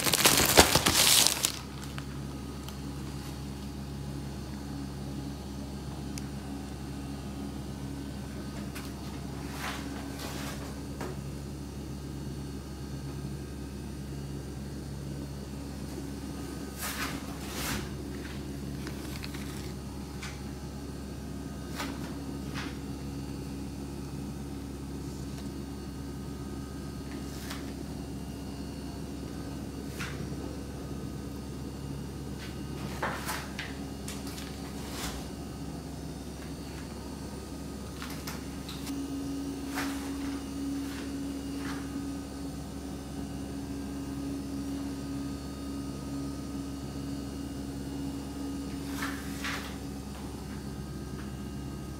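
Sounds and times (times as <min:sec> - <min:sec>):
grocery packaging clicks and knocks: 0:00.0 - 0:02.1
electrical hum: 0:00.0 - 0:51.9.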